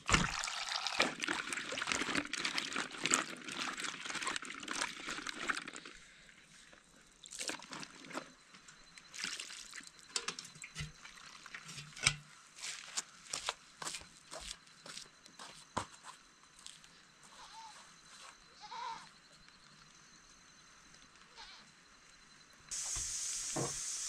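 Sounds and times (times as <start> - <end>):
water pouring and trickling: 0.0 - 6.0, 7.2 - 8.3, 9.1 - 11.9, 22.7 - 24.0.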